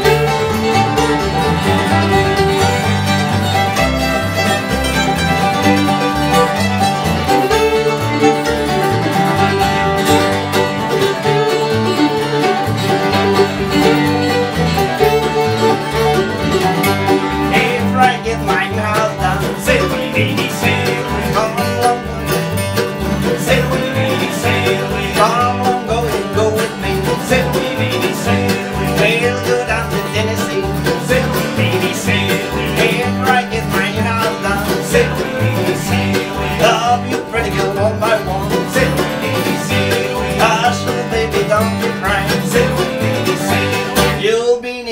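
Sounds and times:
fiddle: 0.0 - 44.3
banjo rolls: 0.0 - 44.5
acoustic guitars: 0.0 - 44.9
upright bass: 0.0 - 44.9.

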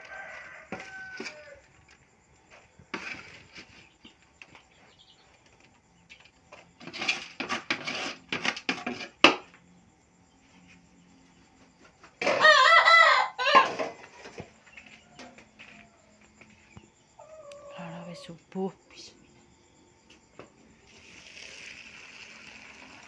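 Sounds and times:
rooster crowing: 0.0 - 1.8, 12.2 - 14.0, 17.2 - 18.2.

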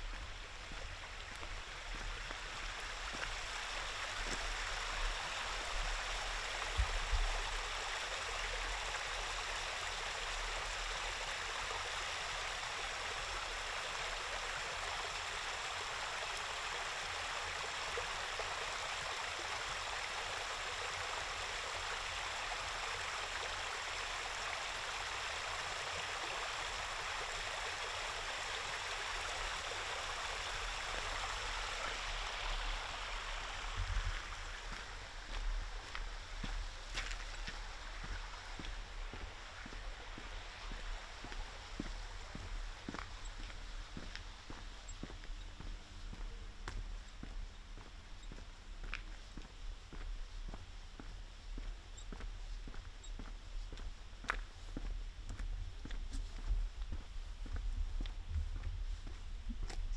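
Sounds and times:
stream water rushing: 0.0 - 45.3.

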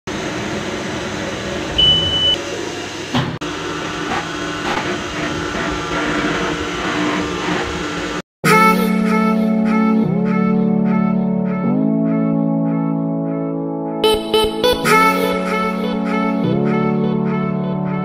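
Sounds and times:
milling machine hum and whine: 0.1 - 8.2
short high beep: 1.8 - 2.4
music: 8.4 - 18.0.

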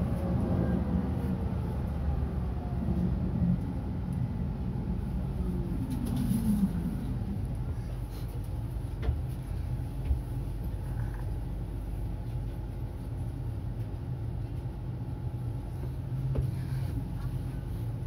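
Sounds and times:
tram low rumble: 0.0 - 18.0.

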